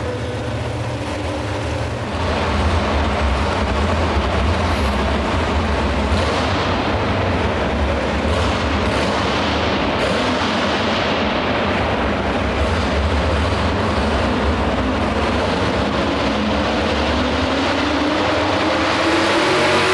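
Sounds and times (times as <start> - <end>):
truck engine idling: 0.0 - 6.2.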